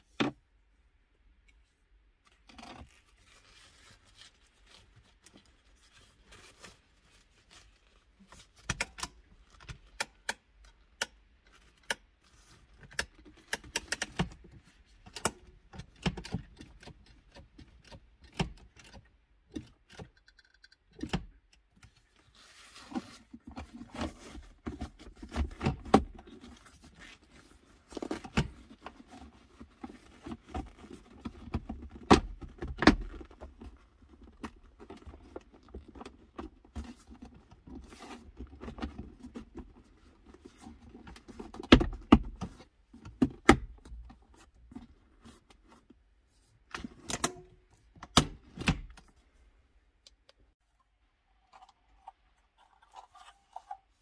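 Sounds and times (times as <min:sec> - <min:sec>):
rustling: 0:02.3 - 0:08.7, 0:21.9 - 0:41.6.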